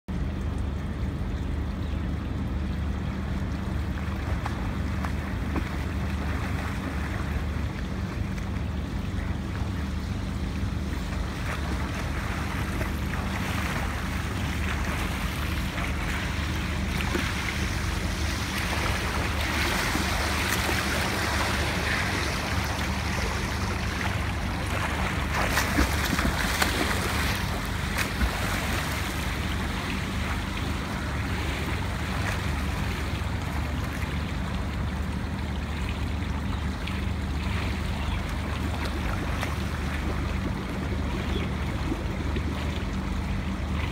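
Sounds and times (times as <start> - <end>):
steady low hum: 0.1 - 43.9
swimmer splashing in pool: 11.0 - 32.9.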